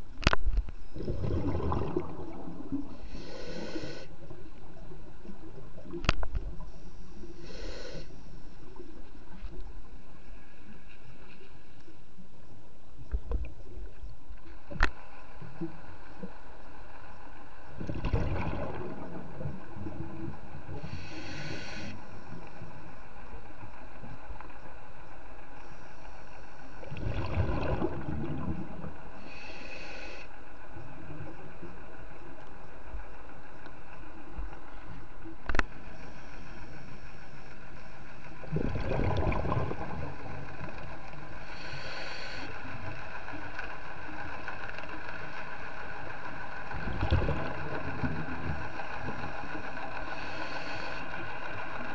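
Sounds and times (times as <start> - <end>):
steady underwater hiss: 0.0 - 51.9
exhaled bubbles: 0.9 - 4.0, 17.8 - 20.2, 26.8 - 28.9, 38.4 - 40.8, 46.7 - 48.6
diver breathing through regulator: 2.9 - 4.2, 7.1 - 8.4, 20.8 - 22.1, 29.2 - 30.3, 41.4 - 42.6, 50.0 - 51.3.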